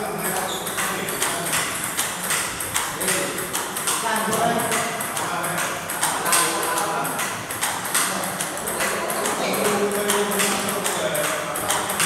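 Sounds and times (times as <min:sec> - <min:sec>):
table tennis ball clicks: 0:00.5 - 0:09.4.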